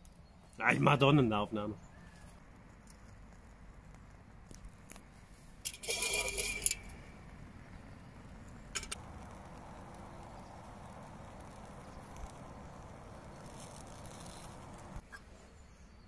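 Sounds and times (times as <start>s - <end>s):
metal cup clinking and rattling: 5.7s - 6.9s.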